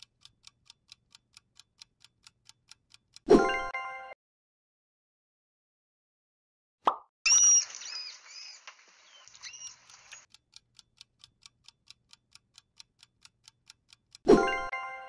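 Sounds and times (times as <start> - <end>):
clock ticking: 0.0 - 3.3, 10.2 - 14.4
manatee squeaking and chirping: 7.3 - 10.2.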